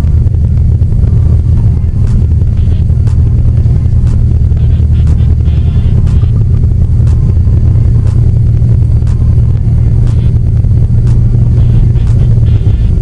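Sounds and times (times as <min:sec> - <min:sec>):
aircraft engine droning: 0:00.0 - 0:13.0.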